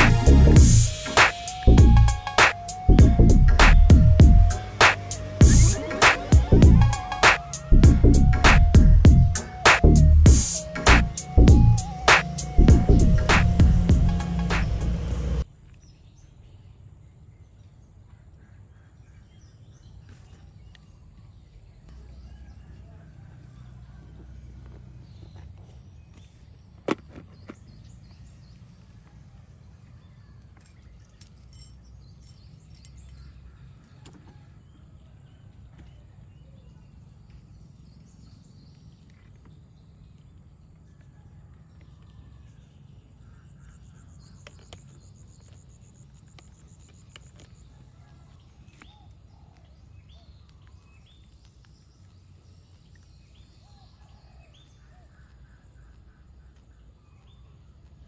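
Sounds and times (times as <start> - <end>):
low steady rumble: 2.9 - 4.6, 6.4 - 7.0, 7.7 - 11.8, 12.6 - 15.4.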